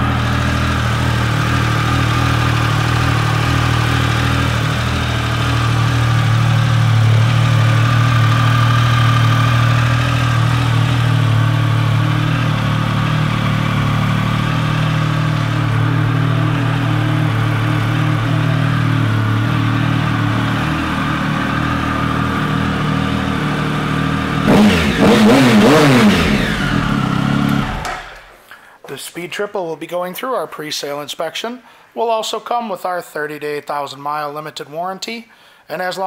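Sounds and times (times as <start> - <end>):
motorcycle engine idling and revving: 0.0 - 28.4.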